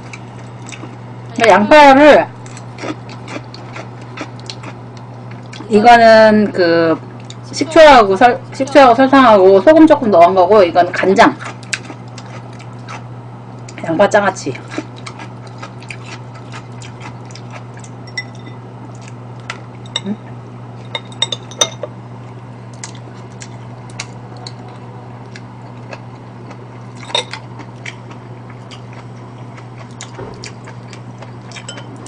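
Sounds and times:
steady low hum: 0.0 - 32.0
chopsticks clinking against bowls: 31.5 - 32.0.

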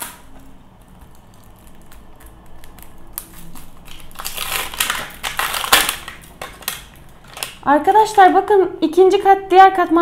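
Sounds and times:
plastic wrap tearing: 0.0 - 8.2
plastic wrapping crackling: 0.0 - 8.4.

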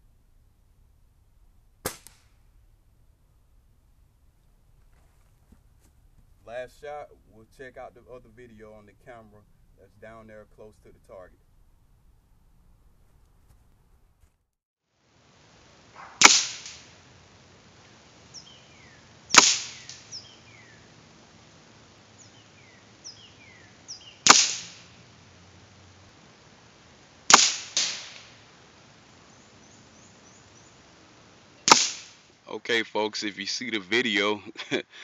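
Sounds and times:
pellet rifle cracks: 1.8 - 2.5, 15.9 - 17.0, 19.3 - 20.2, 24.2 - 24.9, 27.3 - 28.4, 31.6 - 32.2.

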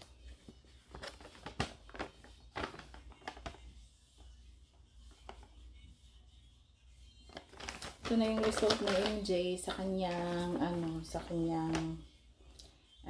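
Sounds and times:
paper rustling: 0.0 - 3.6, 7.3 - 12.0.

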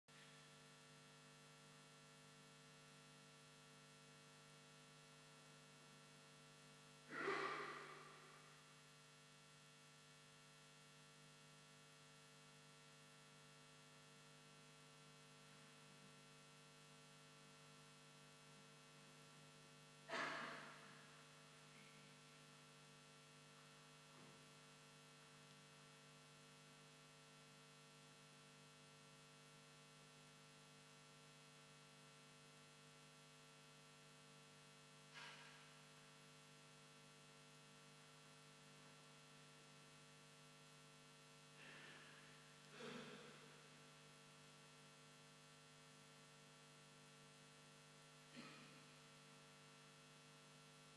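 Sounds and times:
faint electrical hum: 0.2 - 50.9
brief sharp noise: 7.1 - 8.2.

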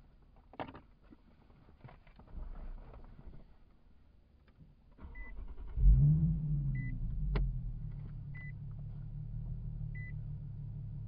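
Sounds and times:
car engine starting and idling: 5.0 - 11.0.

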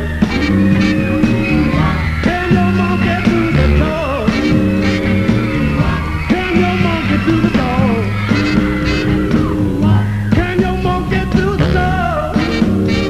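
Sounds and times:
rock and roll band playing: 0.0 - 13.0
man singing: 2.1 - 5.0, 5.7 - 8.8, 9.8 - 13.0.

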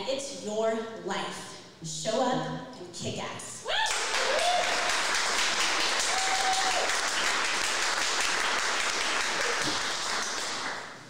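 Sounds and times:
person cheering: 3.6 - 5.0, 6.0 - 7.1
audience applauding: 3.8 - 11.0.

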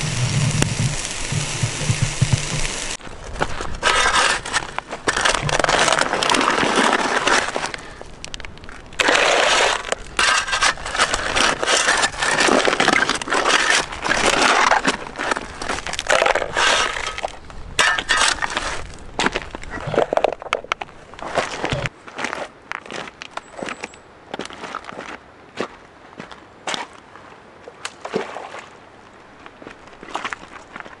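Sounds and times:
shovel digging into gravel: 3.6 - 7.8, 9.0 - 20.2.

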